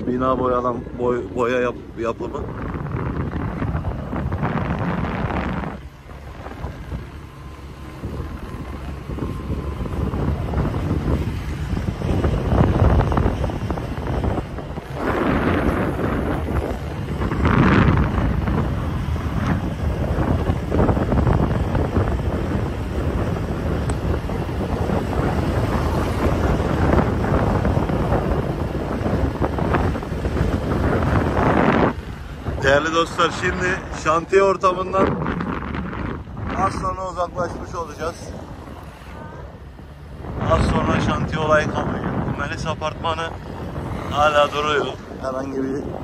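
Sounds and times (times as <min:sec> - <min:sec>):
wind buffeting microphone: 0:00.0 - 0:46.0
motor scooter passing: 0:03.7 - 0:34.1.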